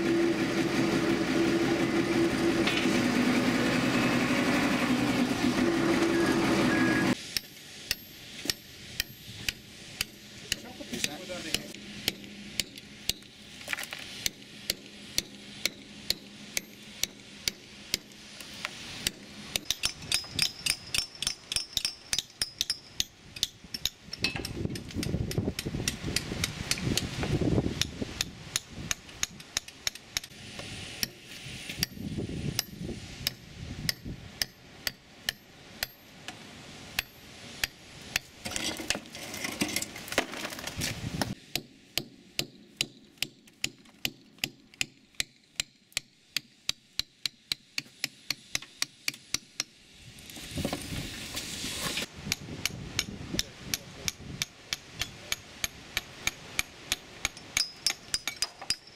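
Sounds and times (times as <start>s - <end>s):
hammer and chisel tapping metal: 7.4s - 13.3s, 19.0s - 27.1s, 32.6s - 36.4s, 52.3s - 58.9s.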